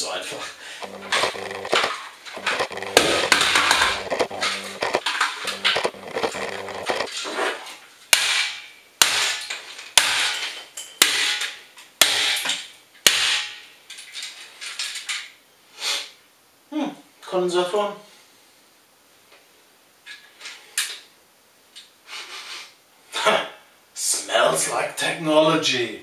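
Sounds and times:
clattering and rummaging: 0.8s - 7.6s.

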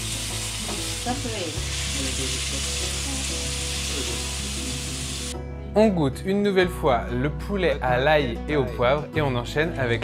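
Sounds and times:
food sizzling in a wok: 0.0s - 5.4s.

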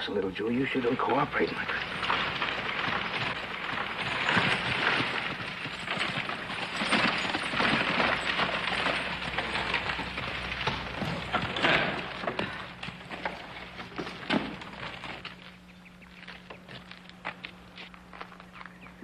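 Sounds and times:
hooves clopping: 0.0s - 19.0s
wagon rattling: 0.0s - 19.0s.

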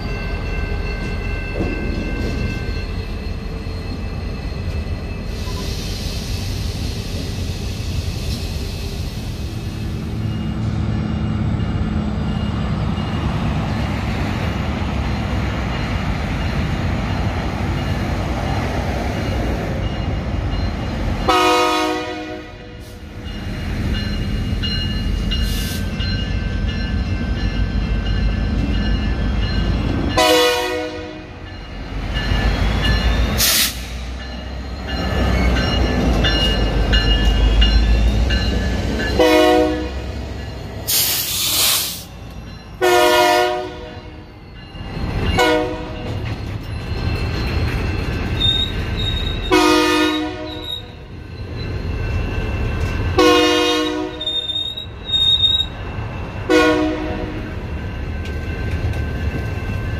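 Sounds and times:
wheels squealing on rails: 0.0s - 14.5s, 15.2s - 30.7s, 31.4s - 43.4s, 44.1s - 59.9s
diesel locomotive engine rumbling: 0.0s - 59.9s
train horn blasts: 21.3s - 22.9s, 30.2s - 31.4s, 39.2s - 40.1s, 42.8s - 44.2s, 45.4s - 46.0s, 49.5s - 50.7s, 53.2s - 54.3s, 56.5s - 57.4s.

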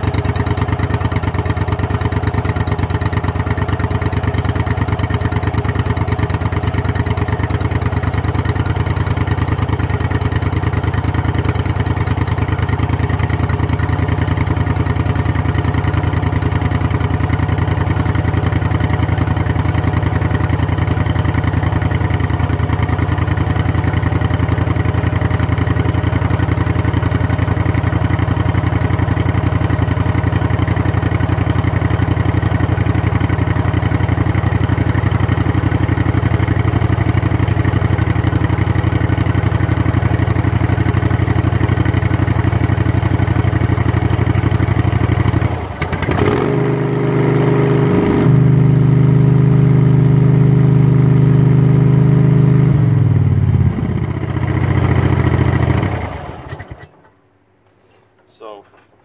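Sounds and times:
engine idling through straight pipe: 0.0s - 46.0s.

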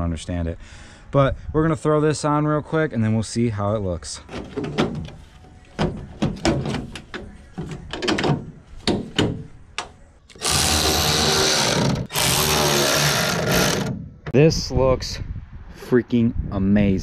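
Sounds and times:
cordless electric ratchet running: 10.3s - 13.9s.

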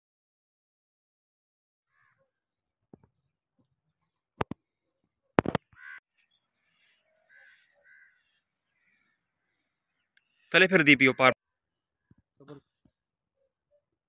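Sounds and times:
crows cawing: 1.9s - 2.4s, 5.6s - 11.3s.

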